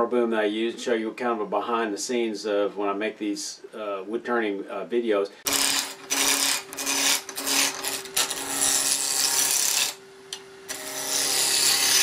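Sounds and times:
gouge cutting wood on lathe: 5.5 - 10.0, 10.7 - 12.0.

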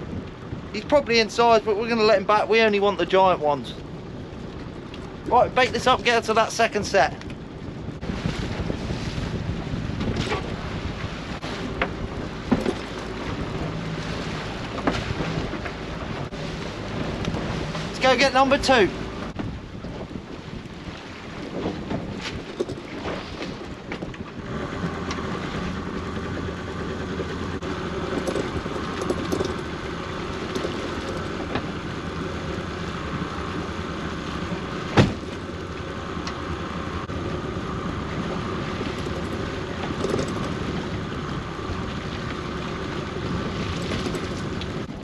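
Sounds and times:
boat engine running: 0.0 - 45.0
winch running: 24.8 - 33.1, 38.7 - 41.0.

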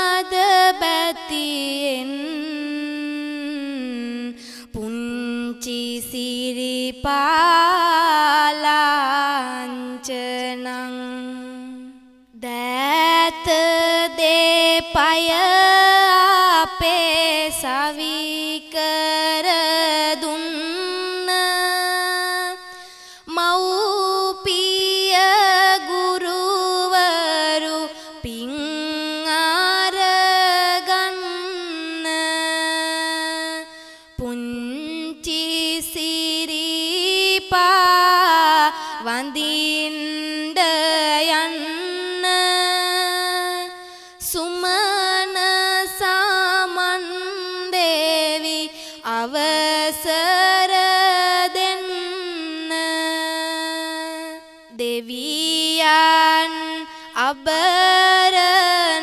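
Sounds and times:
woman singing verse: 0.0 - 59.0.

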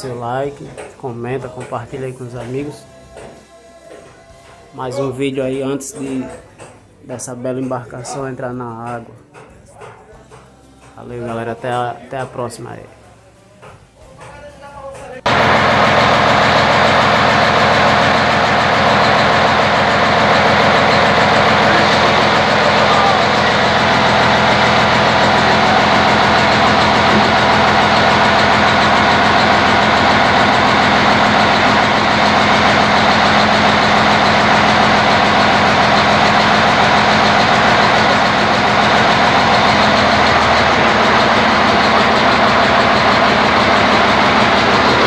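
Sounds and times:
diesel engine idling: 15.3 - 45.0.

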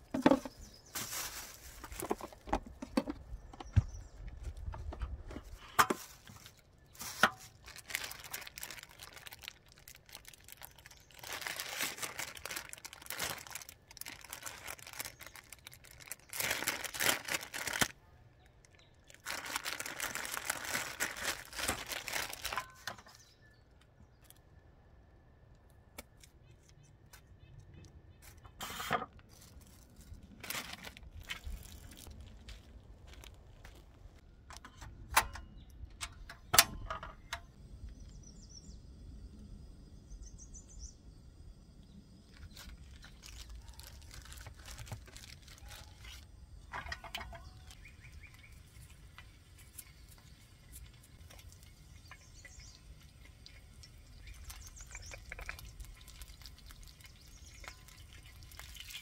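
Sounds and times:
faint birds chirping: 0.0 - 28.6, 35.4 - 59.0
items clicking and knocking on table: 0.1 - 0.6, 1.8 - 3.9.

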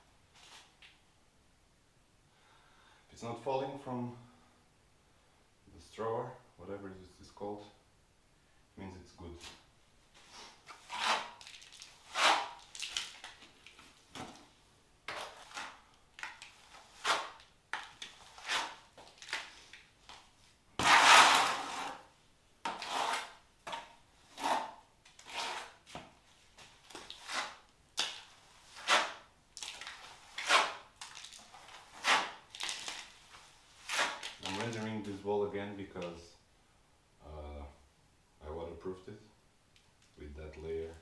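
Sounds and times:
trowel scraping render on wall: 10.4 - 13.3, 15.1 - 19.5, 20.8 - 25.9, 26.9 - 29.3, 29.9 - 32.5, 33.8 - 34.8.

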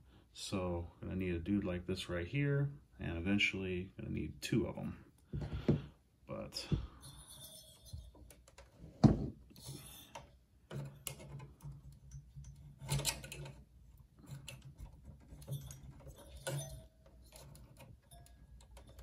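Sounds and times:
screwdriver clicking and scraping metal: 7.0 - 8.8, 9.5 - 19.0.

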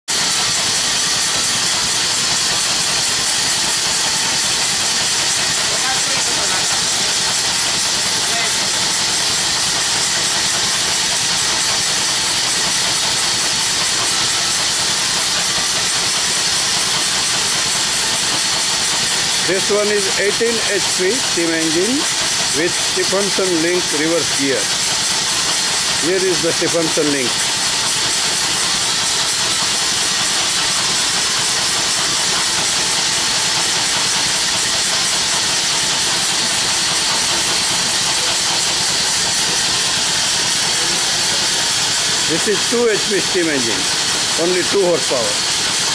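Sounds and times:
loud steam hiss: 0.1 - 45.9
steam engine running: 0.1 - 45.9.

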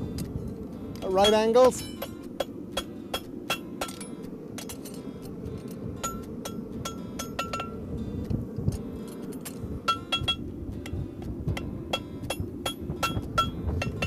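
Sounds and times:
steady low rush: 0.0 - 14.0
hammer striking steel on anvil: 1.0 - 5.0, 6.0 - 7.8, 9.4 - 10.5, 11.9 - 14.0.

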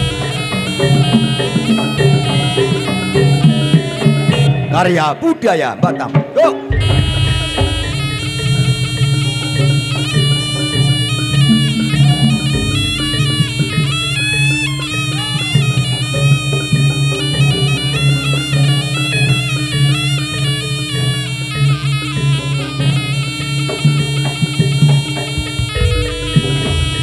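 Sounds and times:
shrill double-reed trumpet melody: 0.0 - 4.8, 6.7 - 27.0
drums: 0.0 - 27.0
steady low drone: 6.8 - 17.7.

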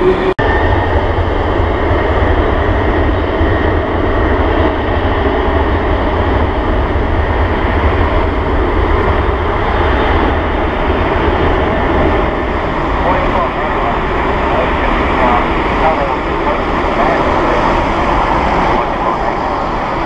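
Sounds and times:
jet engines running: 0.0 - 20.0.

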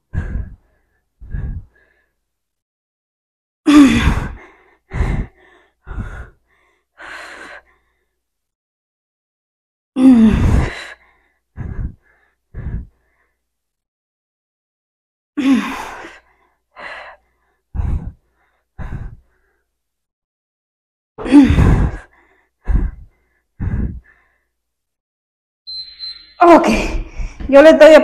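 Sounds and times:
woman breathing heavily: 0.0 - 2.3, 3.7 - 8.2, 10.0 - 13.6, 15.4 - 19.8, 21.2 - 24.6, 26.7 - 27.5.

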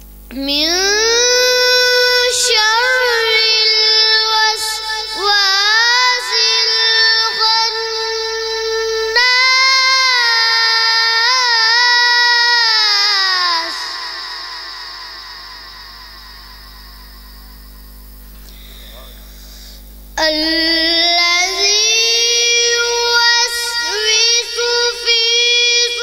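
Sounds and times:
boy reciting melodically: 0.3 - 17.6, 20.2 - 26.0
long echo: 0.7 - 19.3.

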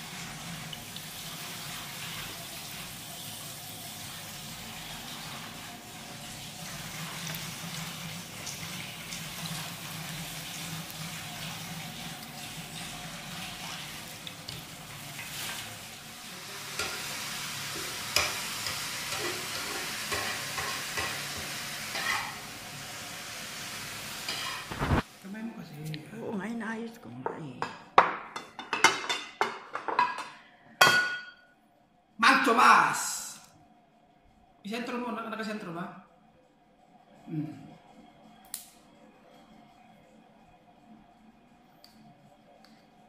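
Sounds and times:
meat sizzling in hot oil: 0.0 - 25.2
metal spatula scraping a pan: 17.8 - 22.4, 24.3 - 25.0.

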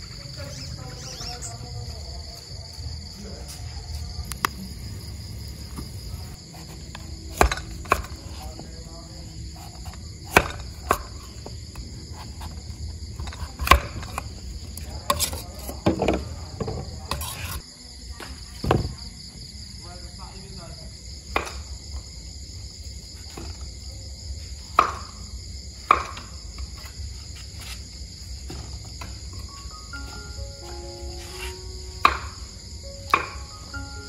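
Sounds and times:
crickets chirping: 0.0 - 34.0
cleaver chopping on wooden board: 6.5 - 8.6, 9.6 - 12.5, 13.2 - 14.3, 21.4 - 21.6, 24.8 - 25.1, 25.9 - 26.3, 32.0 - 32.4, 33.1 - 33.5.

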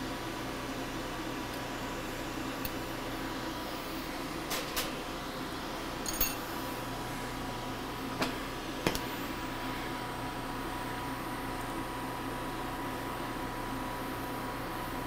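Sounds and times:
torch and ventilation rushing: 0.0 - 15.0
glass clinking: 6.0 - 6.5.

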